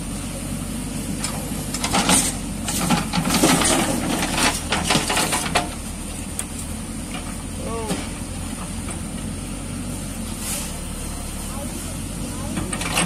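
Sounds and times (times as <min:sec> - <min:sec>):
diesel engine running: 0:00.0 - 0:13.0
bucket scraping on gravel: 0:01.9 - 0:05.8.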